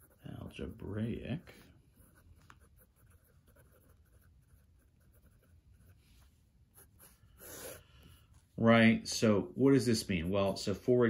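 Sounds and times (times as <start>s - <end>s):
pen scratching on paper: 0.0s - 7.8s.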